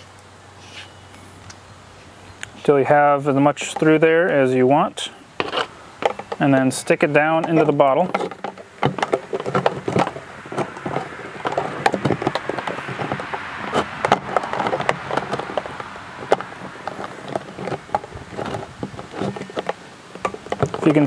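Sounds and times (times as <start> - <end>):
hose rubbing in plastic bottle: 5.4 - 21.0.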